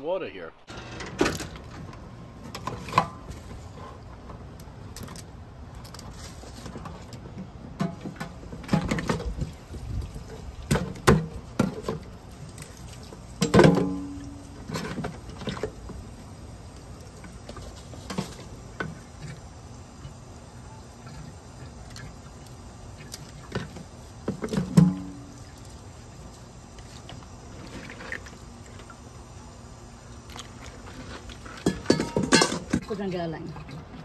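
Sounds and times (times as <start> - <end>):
crabs knocking against metal sink: 31.6 - 32.9.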